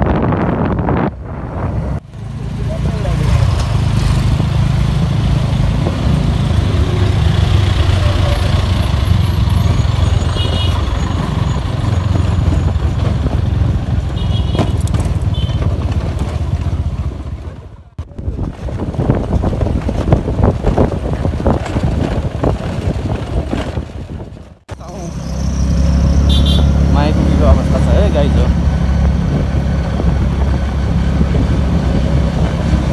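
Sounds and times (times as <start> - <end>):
road and wind noise: 0.0 - 32.9
street sound: 0.0 - 32.9
motor scooter: 2.2 - 24.4
motorcycle engine running: 2.2 - 25.0.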